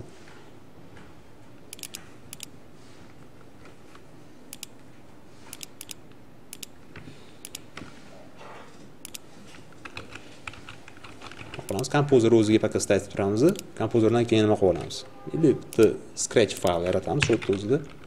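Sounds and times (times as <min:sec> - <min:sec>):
computer mouse clicking: 0:01.7 - 0:02.5, 0:04.5 - 0:04.8, 0:05.5 - 0:08.0, 0:09.0 - 0:11.9, 0:13.4 - 0:13.7.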